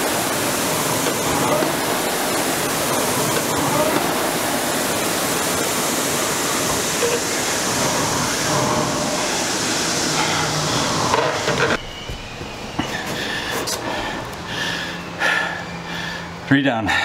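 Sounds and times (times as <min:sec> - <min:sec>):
rowing machine flywheel whooshing: 0:00.0 - 0:13.3.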